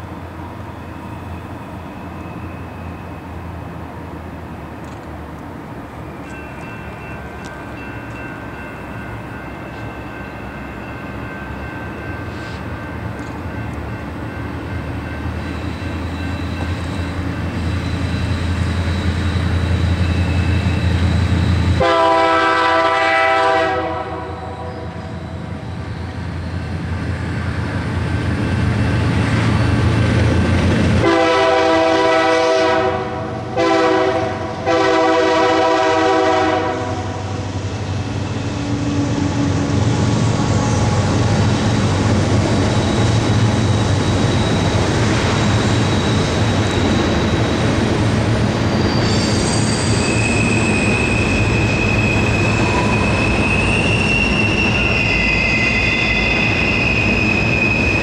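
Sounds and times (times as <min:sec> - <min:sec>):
diesel locomotive engine rumble: 0:00.0 - 0:58.0
locomotive air horn blasts: 0:21.8 - 0:25.0, 0:31.0 - 0:37.2.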